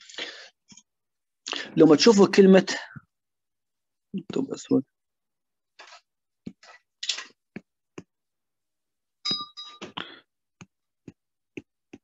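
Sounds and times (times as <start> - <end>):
ringing clink: 9.3 - 9.9.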